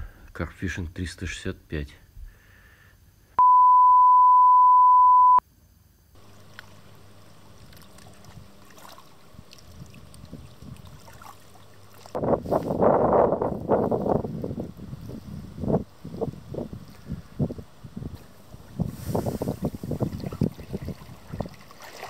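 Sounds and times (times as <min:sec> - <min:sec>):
steady electronic beep: 0:03.4 - 0:05.4
faint water noise: 0:06.2 - 0:22.0
wind buffeting microphone: 0:09.3 - 0:11.2, 0:12.1 - 0:21.9.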